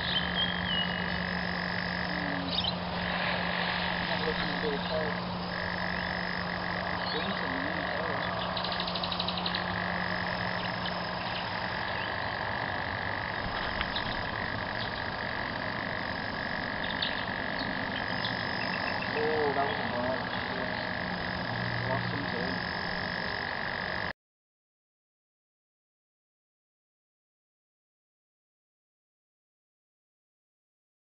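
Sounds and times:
frogs trilling: 0:00.0 - 0:24.1
low frog calls: 0:00.0 - 0:24.1.

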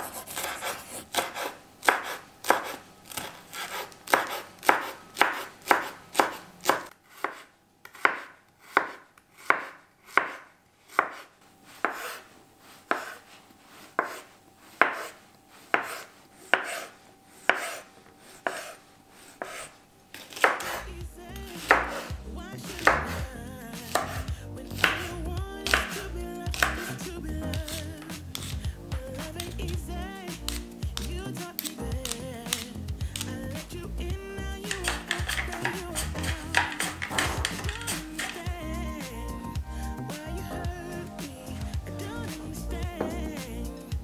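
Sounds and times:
knife chopping on wooden board: 0:00.0 - 0:12.2, 0:12.9 - 0:13.2, 0:14.0 - 0:16.9, 0:17.5 - 0:17.8, 0:19.4 - 0:20.8, 0:21.5 - 0:22.1, 0:22.7 - 0:23.2, 0:23.9 - 0:25.1, 0:25.7 - 0:28.6, 0:34.7 - 0:38.4.

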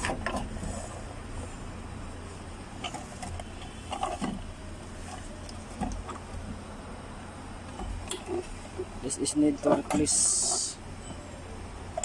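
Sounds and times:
plastic knocks clicks and scrapes: 0:00.0 - 0:00.8, 0:02.8 - 0:04.5, 0:05.1 - 0:06.6
low steady hum: 0:00.0 - 0:12.0.

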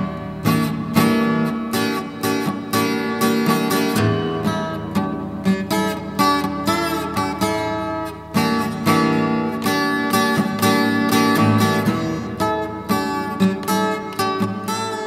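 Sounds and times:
acoustic guitar music: 0:00.0 - 0:15.0.

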